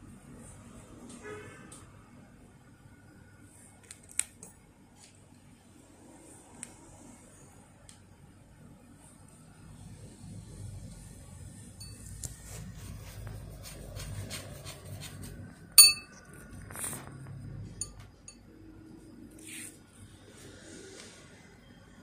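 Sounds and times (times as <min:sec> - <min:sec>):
brush tapping ceramic bowl: 0:11.8 - 0:16.2
ringing clink: 0:15.8 - 0:16.2.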